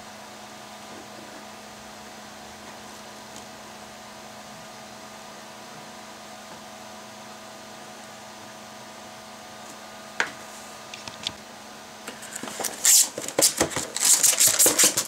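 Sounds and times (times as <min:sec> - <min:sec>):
steady background hum: 0:00.0 - 0:15.0
plastic and cardboard crinkling: 0:12.1 - 0:15.0.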